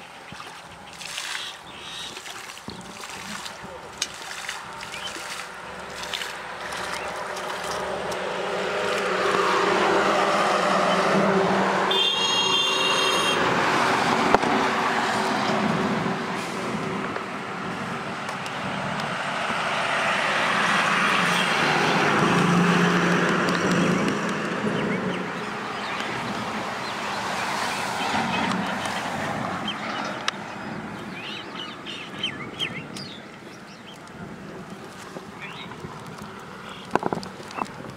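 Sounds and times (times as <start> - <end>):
road traffic passing: 0.0 - 37.9
short high-pitched horn toot: 11.9 - 13.4.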